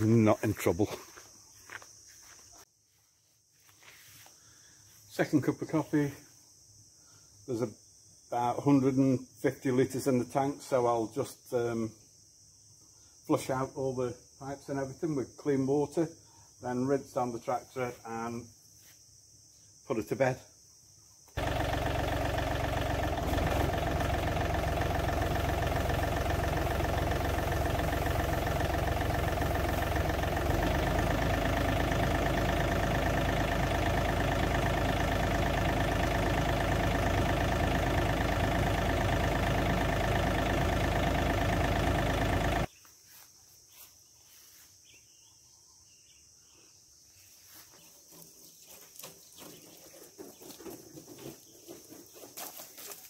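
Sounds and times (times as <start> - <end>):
faint outdoor sounds: 0.0 - 33.1, 42.6 - 53.0
tractor diesel engine running: 21.4 - 42.7.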